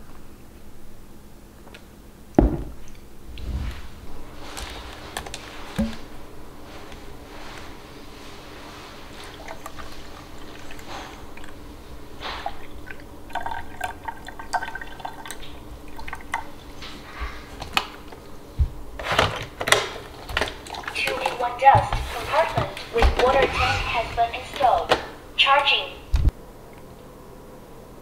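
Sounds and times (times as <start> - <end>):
water pouring into a tank: 9.1 - 16.5.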